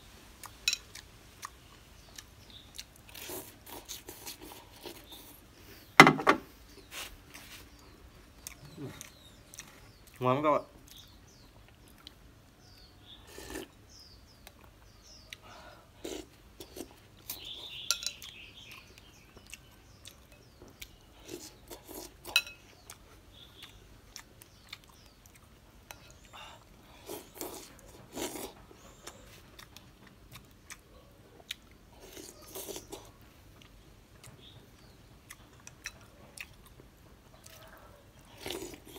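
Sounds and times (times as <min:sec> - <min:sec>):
chewing and biting: 0:00.4 - 0:05.4, 0:07.3 - 0:10.2, 0:14.4 - 0:38.9
spoon clinking in glass bowl: 0:17.9 - 0:18.2.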